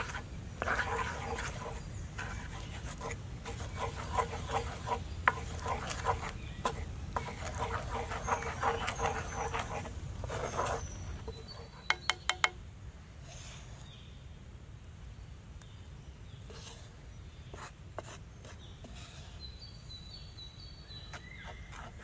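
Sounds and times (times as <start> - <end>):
wooden spoon scraping batter in skillet: 0.0 - 12.3, 16.5 - 19.1, 20.9 - 22.0
sharp taps: 11.9 - 12.6.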